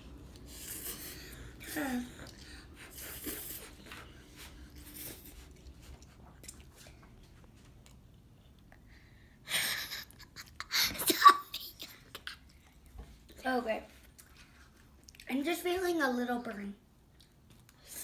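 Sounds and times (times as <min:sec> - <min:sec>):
children slurping noodles: 0:00.3 - 0:06.9.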